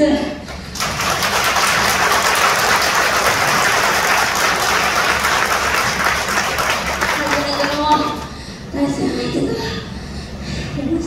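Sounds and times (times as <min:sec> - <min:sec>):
audience applauding: 0:00.5 - 0:08.4.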